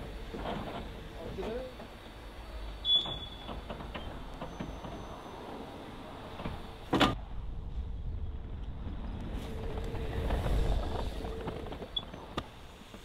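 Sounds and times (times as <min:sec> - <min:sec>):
train clanks: 0:00.0 - 0:07.2
train wheels rumbling on track: 0:00.0 - 0:13.0
high wheel squeal: 0:02.6 - 0:06.0.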